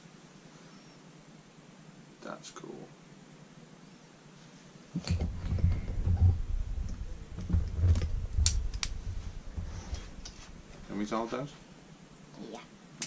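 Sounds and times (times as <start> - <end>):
handling knocks and rubbing: 5.0 - 11.7.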